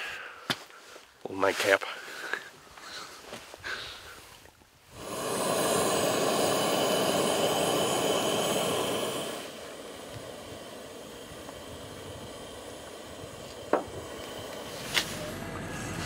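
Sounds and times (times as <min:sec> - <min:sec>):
gas burners hissing: 0:04.9 - 0:16.0.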